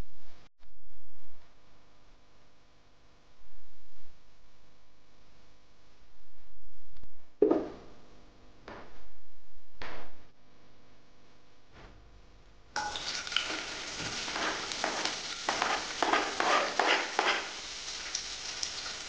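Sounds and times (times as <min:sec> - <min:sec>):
onions sizzling in hot oil: 0:12.8 - 0:19.0.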